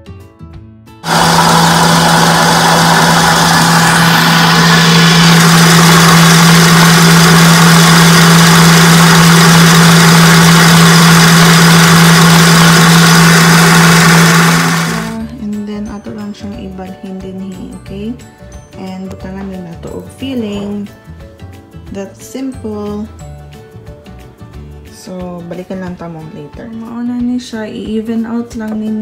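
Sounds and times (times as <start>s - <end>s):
stand mixer motor humming: 1.0s - 15.2s.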